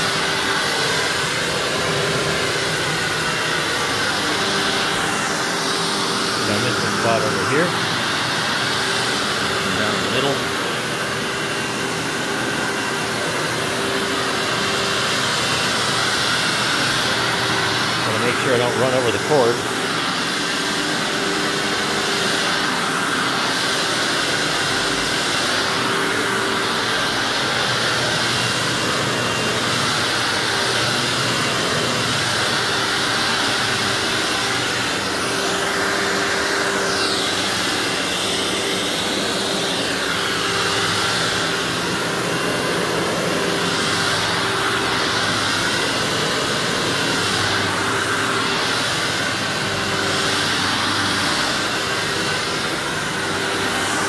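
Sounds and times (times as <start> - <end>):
vacuum cleaner motor drone: 0.0 - 54.0.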